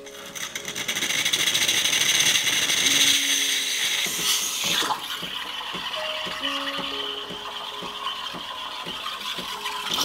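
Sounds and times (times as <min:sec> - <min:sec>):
steam wand hissing: 0:00.1 - 0:06.1.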